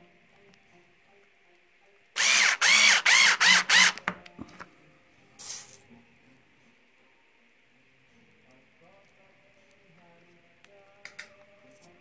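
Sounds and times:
cordless drill spinning up and down: 0:02.2 - 0:04.0.

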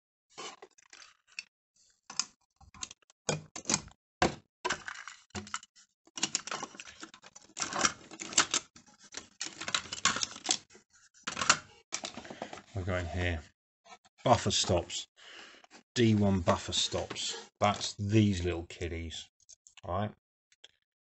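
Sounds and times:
rummaging toy parts in wooden box: 0:00.3 - 0:01.5, 0:04.7 - 0:12.8.

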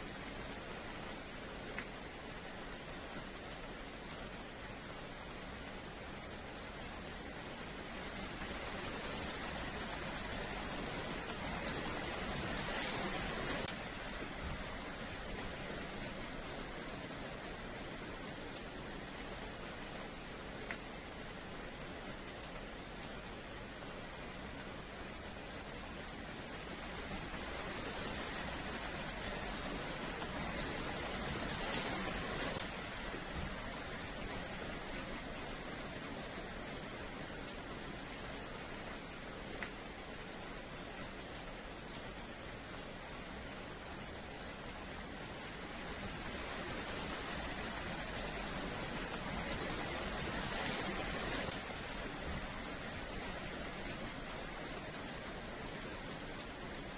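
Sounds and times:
rain on wet pavement: 0:00.0 - 0:56.9.

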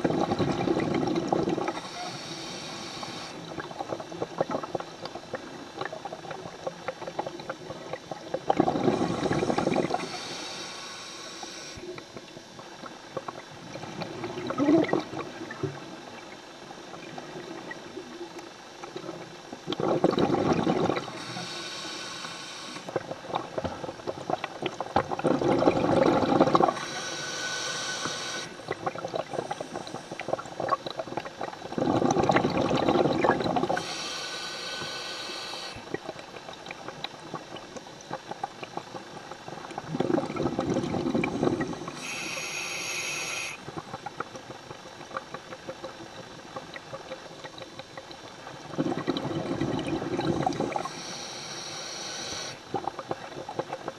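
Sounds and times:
exhaled bubbles burbling: 0:00.0 - 0:10.3, 0:11.4 - 0:21.6, 0:22.7 - 0:27.4, 0:28.3 - 0:34.2, 0:34.8 - 0:42.5, 0:43.4 - 0:53.9
hissing regulator inhale: 0:01.7 - 0:03.5, 0:08.8 - 0:11.9, 0:21.0 - 0:23.0, 0:26.4 - 0:28.6, 0:29.4 - 0:30.4, 0:33.7 - 0:35.9, 0:41.2 - 0:43.6, 0:50.3 - 0:52.7.

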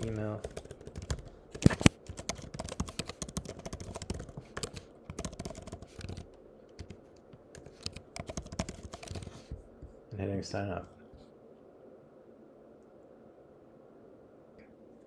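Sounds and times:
computer keyboard typing: 0:00.0 - 0:09.5.

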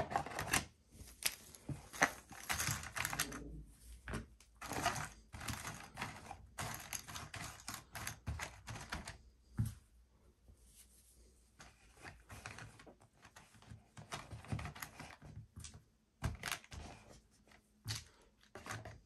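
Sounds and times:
cardboard tokens clattering: 0:00.0 - 0:03.5, 0:04.1 - 0:09.1.

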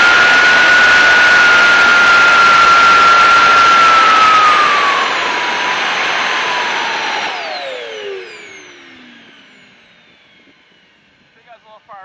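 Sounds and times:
jet engine whining: 0:00.0 - 0:12.0.

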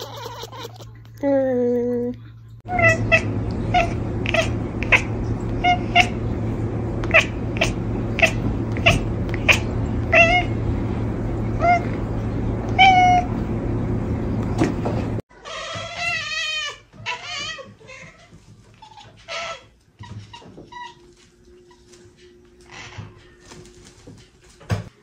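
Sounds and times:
cat chattering: 0:00.0 - 0:01.0, 0:02.7 - 0:13.5
low background hum: 0:00.0 - 0:25.0.

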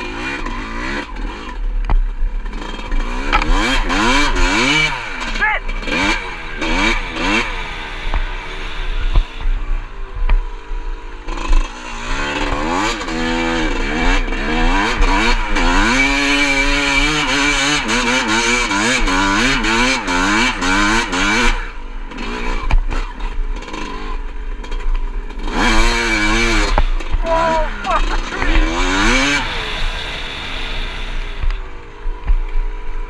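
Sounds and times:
dirt bike engine revving: 0:00.0 - 0:33.0.

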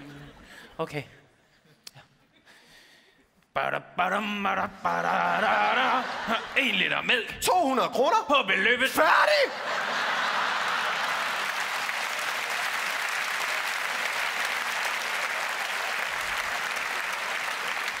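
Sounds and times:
audience applauding: 0:09.5 - 0:18.0.

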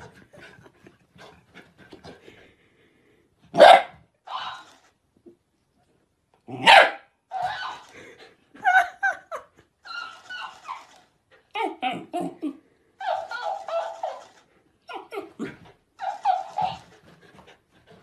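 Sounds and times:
dog barking: 0:03.6 - 0:04.6, 0:06.6 - 0:07.1.

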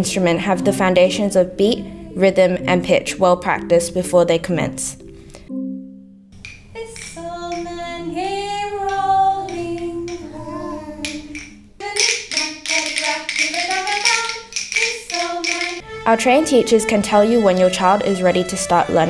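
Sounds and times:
woman singing: 0:00.0 - 0:02.9, 0:06.8 - 0:19.0
rhythm sticks tapping: 0:06.4 - 0:19.0.

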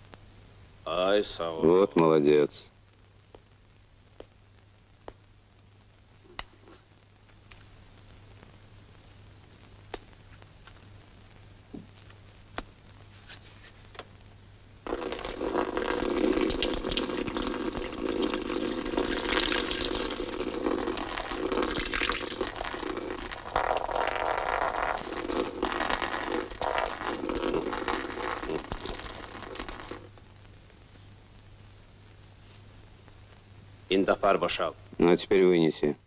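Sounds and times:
man urinating: 0:14.8 - 0:30.1.

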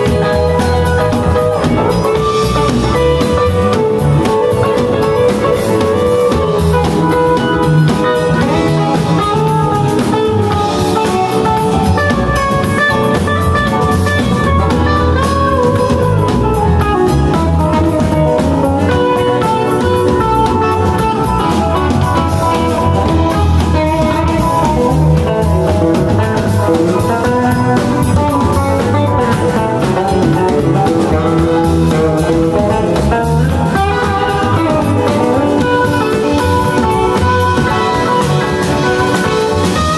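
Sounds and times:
live band playing: 0:00.0 - 0:39.9.

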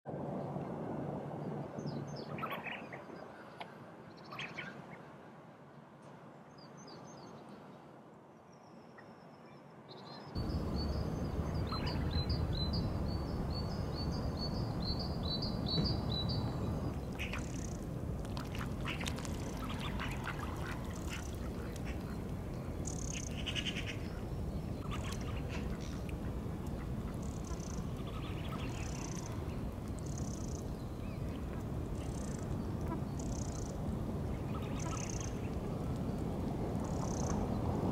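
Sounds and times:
steady background noise: 0:09.3 - 0:37.9
ducks whistling calls: 0:10.4 - 0:16.0, 0:18.4 - 0:24.2, 0:24.8 - 0:29.4.

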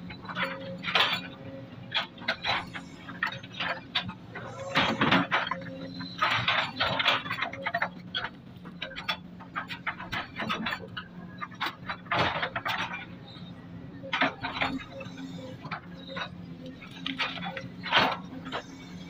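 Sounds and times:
excavator engine hum: 0:00.0 - 0:19.0
metal clanks and rattles: 0:01.9 - 0:13.5.

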